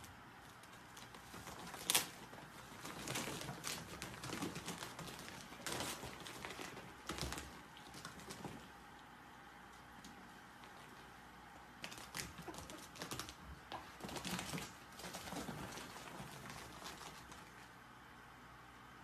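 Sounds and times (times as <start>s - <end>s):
plastic hose crinkling: 0.4s - 9.0s.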